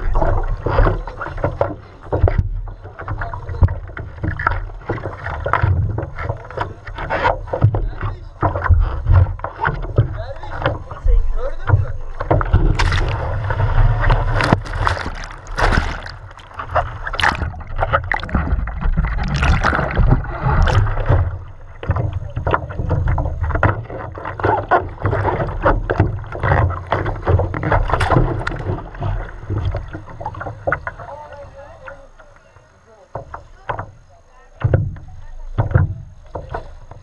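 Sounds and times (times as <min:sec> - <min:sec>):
water splashing and rushing: 0:12.1 - 0:31.3.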